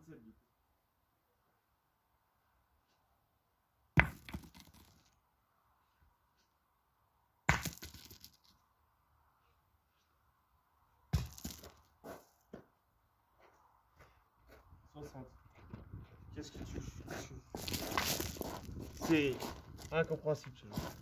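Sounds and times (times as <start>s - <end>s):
knocks and rattles of boules: 4.0s - 5.2s, 7.5s - 8.6s, 11.2s - 11.8s.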